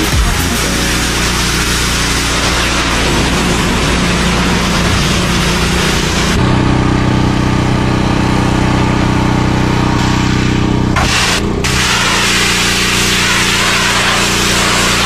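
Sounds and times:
pressure washer spraying metal: 0.0s - 6.4s, 10.0s - 15.0s
motor humming: 0.0s - 15.0s.

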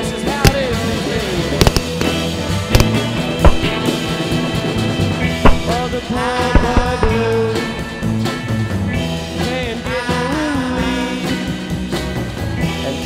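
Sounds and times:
rock music with electric guitar: 0.0s - 13.0s
person singing: 5.6s - 8.0s, 9.4s - 11.4s.

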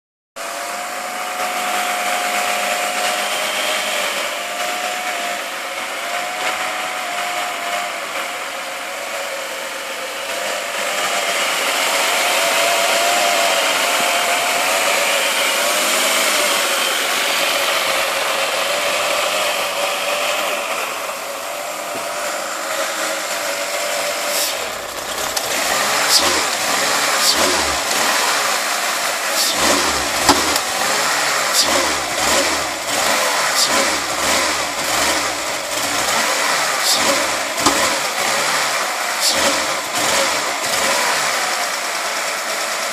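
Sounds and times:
car engine running roughly: 0.4s - 42.9s.

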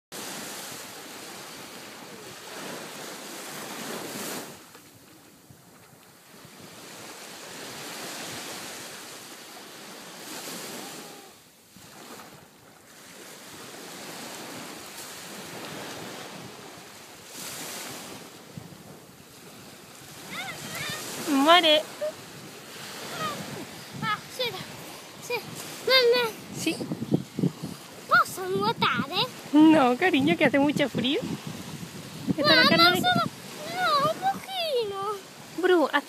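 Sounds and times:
sea waves washing up a shore: 0.2s - 36.0s
wind buffeting the microphone: 13.1s - 35.9s.

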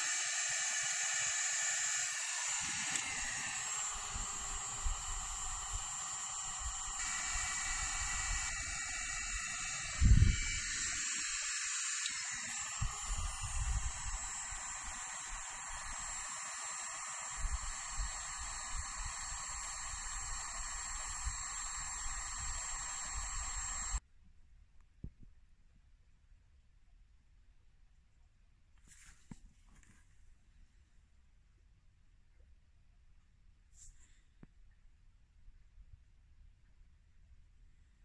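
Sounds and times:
heat gun blowing hot air: 0.0s - 24.0s.

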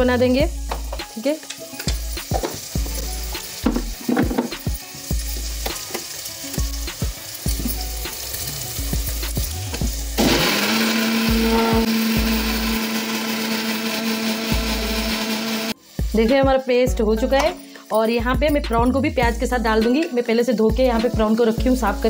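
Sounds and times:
onions sizzling in a pan: 0.0s - 18.6s, 19.3s - 22.0s
mixer grinder running: 10.2s - 15.8s.

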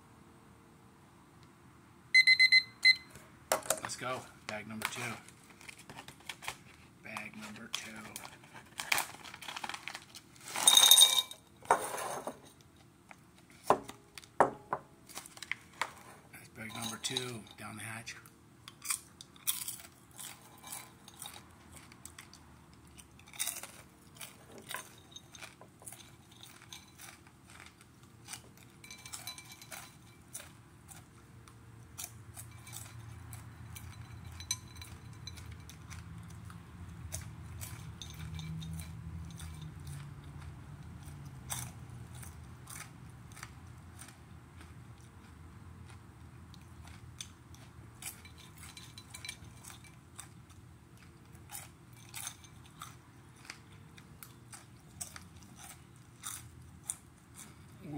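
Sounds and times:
person crunching popcorn: 4.7s - 10.9s, 18.2s - 33.9s, 34.8s - 57.9s
low chewing rumble: 15.1s - 57.9s.

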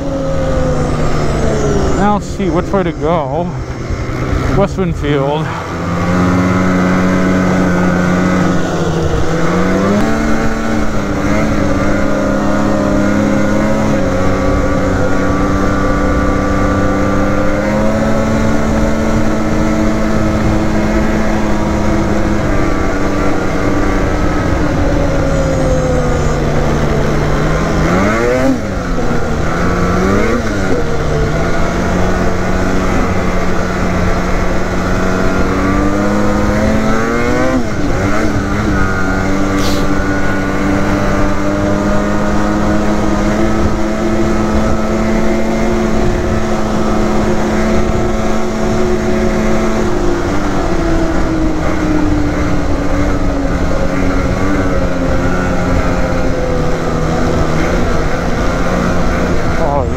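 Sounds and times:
engine throttle blips: 0.0s - 42.0s
snowmobile engine running: 0.0s - 59.9s.

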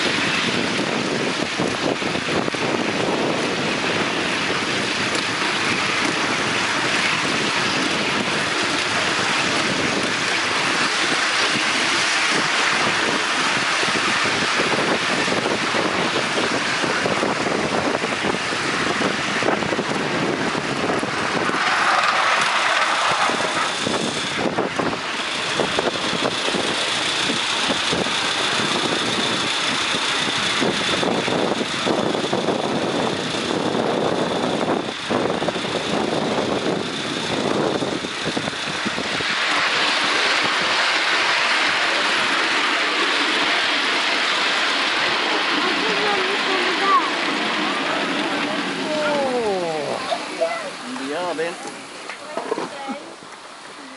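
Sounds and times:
wheels clattering on rails: 0.0s - 53.7s
steam engine running: 0.0s - 53.9s
wind on microphone: 0.0s - 53.9s
steady high tone: 45.9s - 52.0s.

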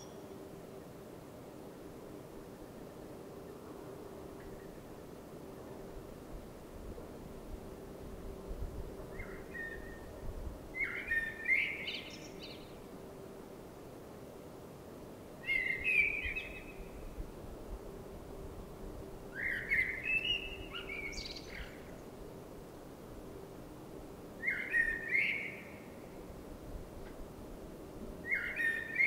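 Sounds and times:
blackbird singing: 10.8s - 12.6s, 19.4s - 21.9s, 24.4s - 25.8s, 28.3s - 29.0s.

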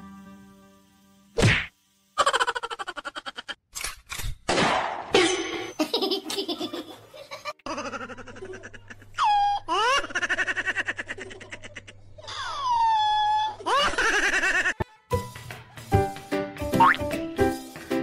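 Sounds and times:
bursts of human laughter: 2.2s - 3.6s.

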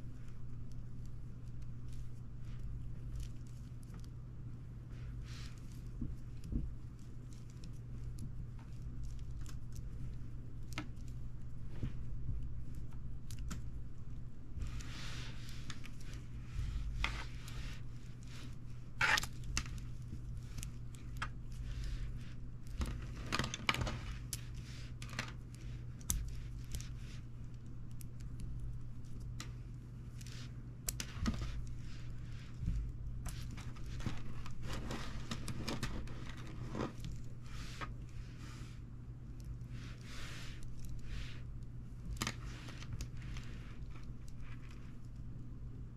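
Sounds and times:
steady low hum: 0.0s - 45.9s
plastic springs scraping and crinkling: 14.6s - 27.0s, 30.1s - 38.4s.

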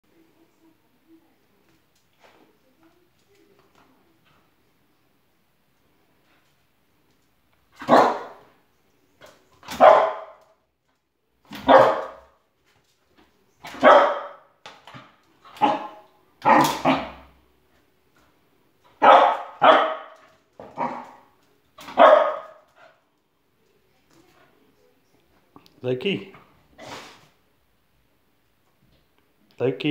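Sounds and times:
dog barking: 7.8s - 8.5s, 9.7s - 10.4s, 11.5s - 12.4s, 13.6s - 14.5s, 15.5s - 17.3s, 19.0s - 22.7s.

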